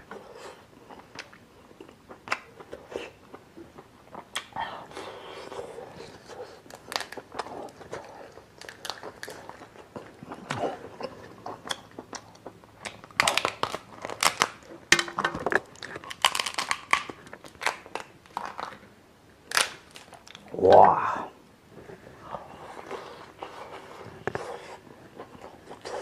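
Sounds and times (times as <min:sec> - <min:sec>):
biting and chewing: 0:05.4 - 0:18.8
lobster shell crackling: 0:12.8 - 0:18.8.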